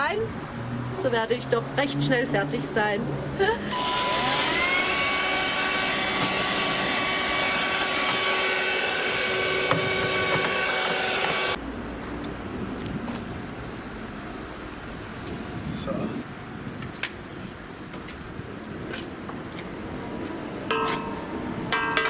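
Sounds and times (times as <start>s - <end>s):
handheld vacuum cleaner whine: 3.7s - 11.6s.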